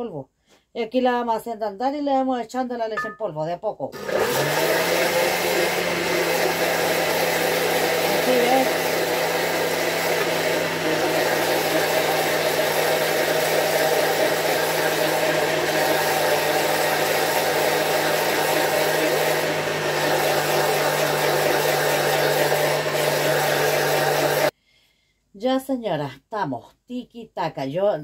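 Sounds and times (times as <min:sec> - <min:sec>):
blender motor humming: 0:04.0 - 0:24.5.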